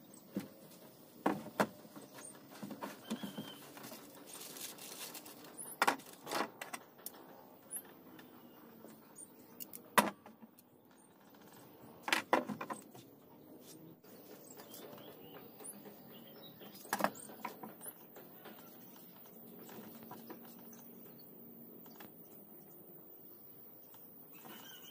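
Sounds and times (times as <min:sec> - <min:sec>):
tools clicking and knocking on wood: 0:14.6 - 0:21.1.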